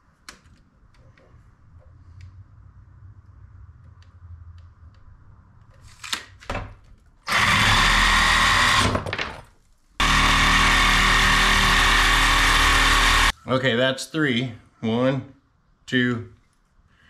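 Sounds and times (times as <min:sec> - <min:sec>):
reciprocating saw cutting: 0:07.3 - 0:08.9, 0:10.0 - 0:13.3.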